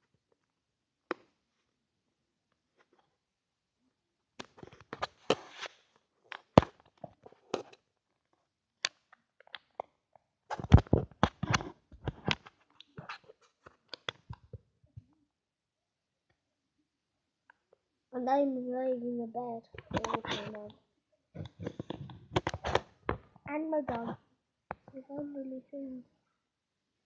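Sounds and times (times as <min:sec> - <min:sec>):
phone being handled: 0:21.4 - 0:23.3.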